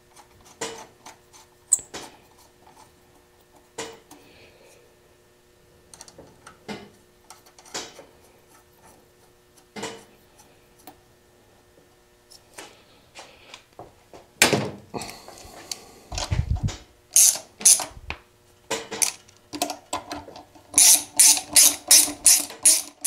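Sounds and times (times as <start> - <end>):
socket ratchet clicking: 17.2 - 17.9, 19.0 - 19.2, 20.8 - 23.0.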